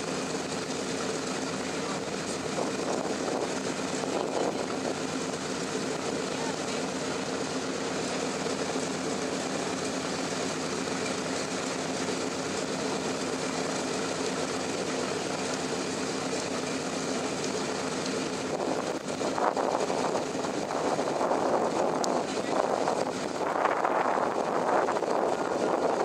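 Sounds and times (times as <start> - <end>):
piston engines droning: 0.0 - 26.0
wind buffeting microphone: 2.4 - 5.0, 18.3 - 26.0.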